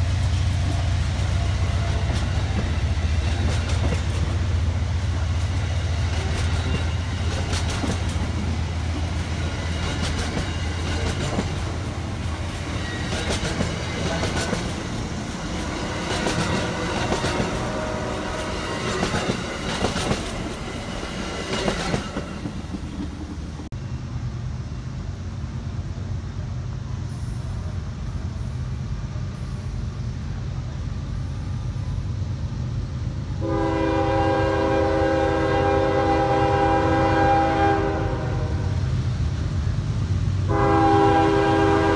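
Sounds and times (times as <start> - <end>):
train wheels clicking over rail joints: 0.0 - 23.7
train horn chord: 15.9 - 19.1, 33.4 - 38.8, 40.5 - 41.9.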